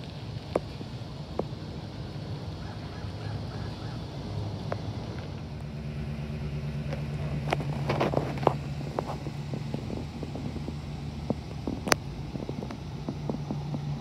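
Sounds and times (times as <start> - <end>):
truck engine idling: 0.0 - 14.0
footsteps crunching on gravel: 6.8 - 14.0.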